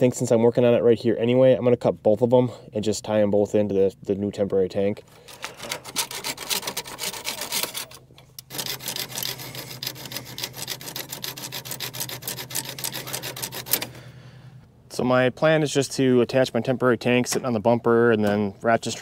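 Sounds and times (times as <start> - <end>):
metal pipe being sawn by hand: 5.3 - 13.9.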